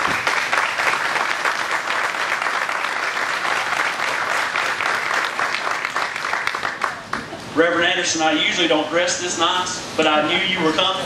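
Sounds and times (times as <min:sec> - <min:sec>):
people clapping: 0:00.0 - 0:07.4.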